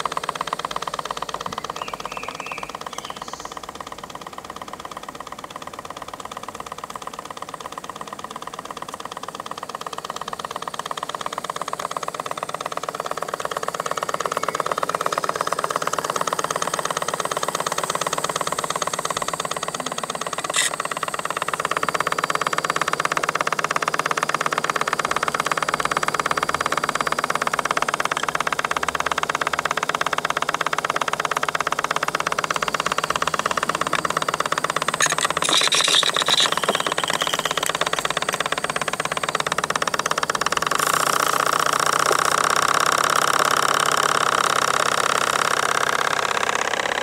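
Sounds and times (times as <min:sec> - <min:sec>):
model steam engine running: 0:00.0 - 0:47.0
sharp click: 0:20.4 - 0:20.8.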